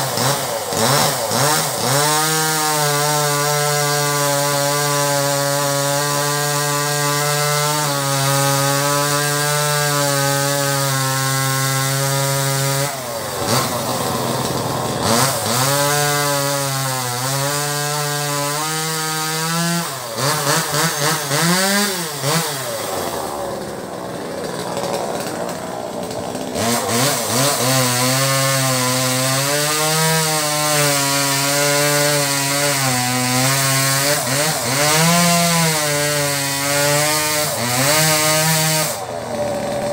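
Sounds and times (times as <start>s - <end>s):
chainsaw cutting wood: 0.0s - 39.9s.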